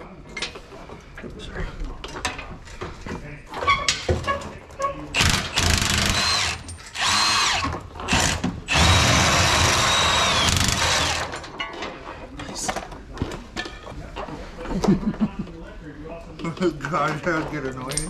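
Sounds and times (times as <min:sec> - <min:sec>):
impact wrench hammering: 0:05.2 - 0:11.4.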